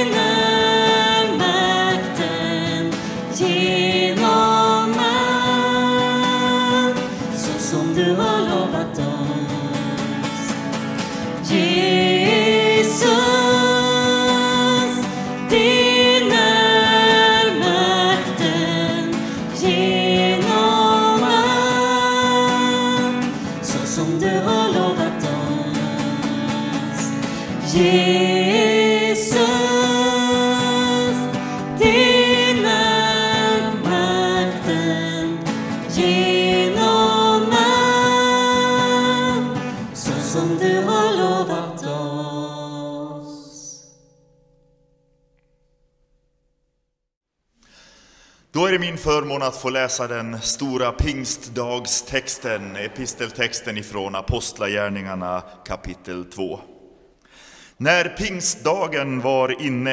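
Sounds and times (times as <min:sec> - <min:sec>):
worship band music: 0:00.0 - 0:43.6
person singing: 0:00.0 - 0:43.9.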